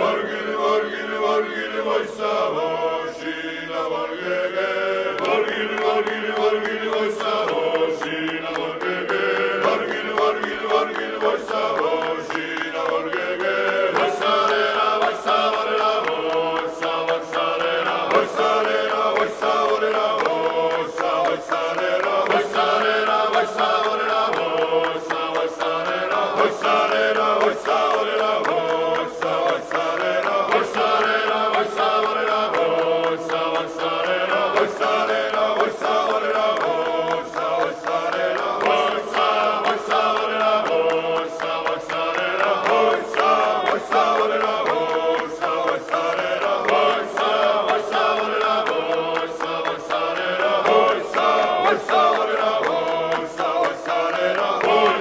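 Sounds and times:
voices chanting long notes: 0:00.0 - 0:55.0.

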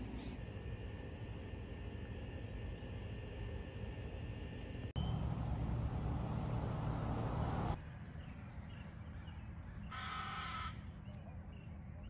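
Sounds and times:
animal call: 0:09.9 - 0:11.0.

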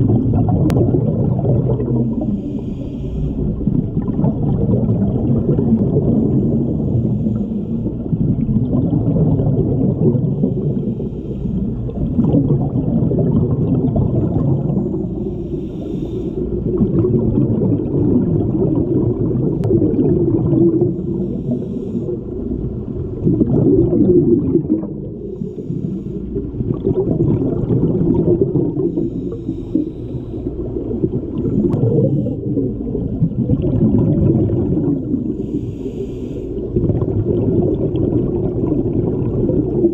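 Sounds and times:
diver breathing through regulator: 0:01.8 - 0:03.8, 0:05.4 - 0:08.2, 0:10.2 - 0:12.2, 0:14.4 - 0:16.8, 0:20.7 - 0:22.5, 0:25.0 - 0:26.8, 0:28.6 - 0:32.9, 0:34.8 - 0:36.8.

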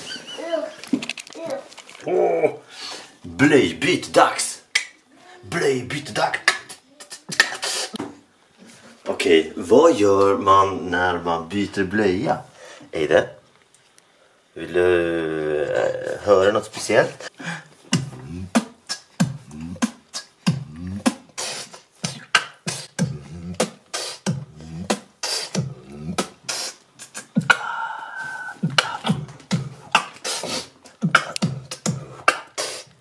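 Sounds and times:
man beatboxing: 0:05.5 - 0:08.0, 0:17.8 - 0:33.0.

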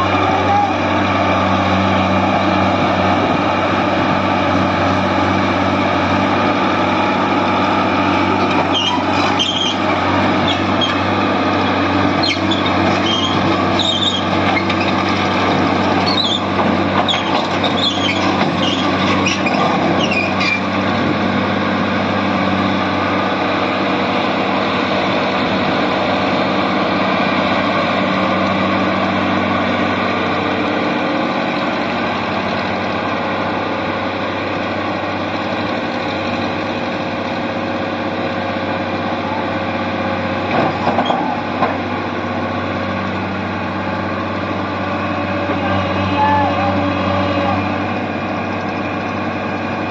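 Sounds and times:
excavator diesel engine running: 0:00.0 - 0:49.9
high squeals: 0:08.6 - 0:11.1, 0:12.1 - 0:15.0, 0:16.0 - 0:20.7.

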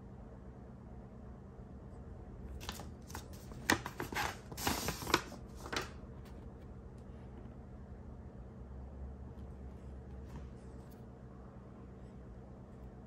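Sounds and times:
low steady hum: 0:00.0 - 0:13.0
paper envelope rustling: 0:02.5 - 0:06.4.

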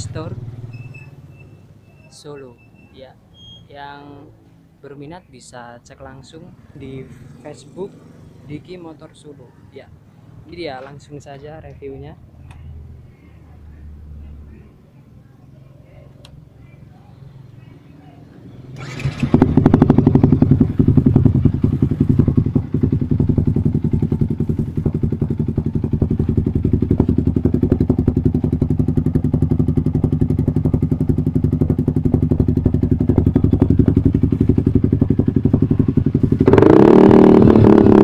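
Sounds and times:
motorcycle engine starting and idling: 0:18.5 - 0:38.0.

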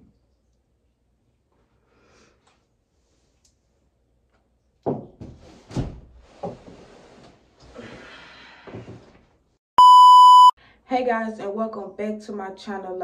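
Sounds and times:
electronic beep: 0:09.8 - 0:10.6.

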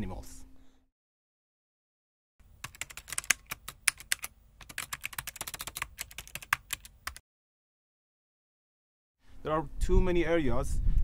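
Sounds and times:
keyboard typing clicks: 0:02.6 - 0:07.2.

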